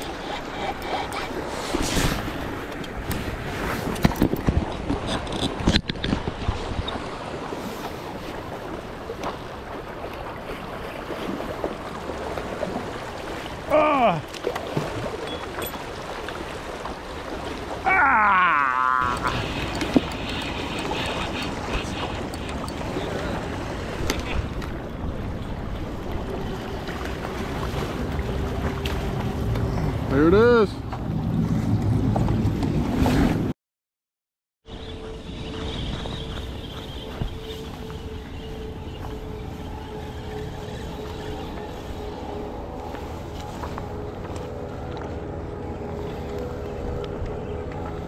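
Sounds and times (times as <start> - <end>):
wind noise on microphone: 0.0 - 7.7, 34.7 - 48.0
river water splashing on kayak: 1.2 - 33.4
wind buffeting microphone: 18.7 - 33.5, 34.7 - 48.0.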